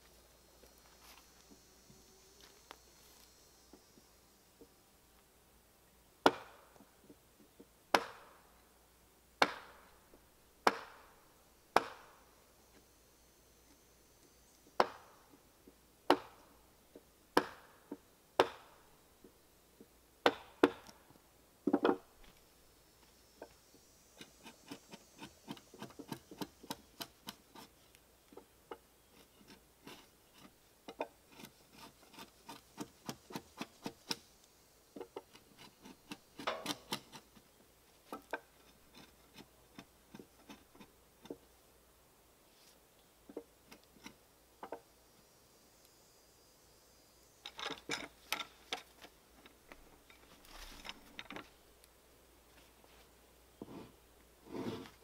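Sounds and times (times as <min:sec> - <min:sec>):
hand tool striking timber beam: 0:07.9 - 0:08.3, 0:09.4 - 0:09.8, 0:10.6 - 0:11.1, 0:11.8 - 0:12.2, 0:14.8 - 0:15.2, 0:17.4 - 0:18.8, 0:20.2 - 0:20.9, 0:35.1 - 0:37.2.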